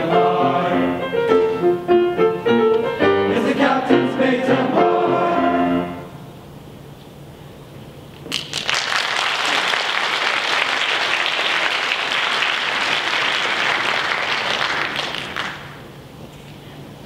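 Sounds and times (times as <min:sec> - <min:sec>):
audience applauding: 0:08.3 - 0:15.9.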